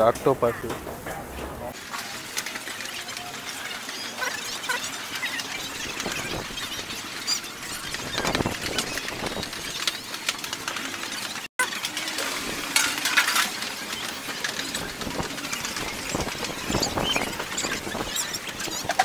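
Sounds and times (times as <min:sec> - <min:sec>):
general din of activity: 0:00.0 - 0:19.0
knocks and clinks from stalls: 0:07.4 - 0:19.0.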